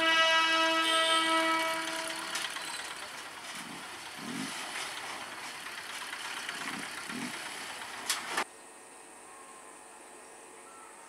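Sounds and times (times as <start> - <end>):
truck engine running: 1.1 - 8.4.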